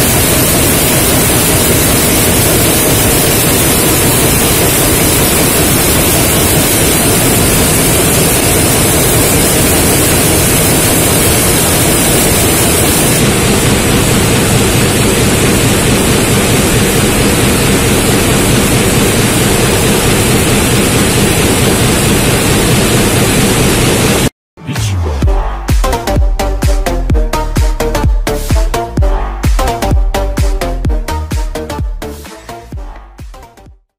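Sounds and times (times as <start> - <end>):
production line machinery roar: 0.0 - 33.6.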